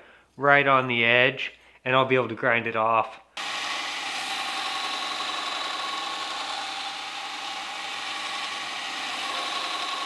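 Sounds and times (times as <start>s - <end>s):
belt grinder grinding steel: 3.4s - 10.0s.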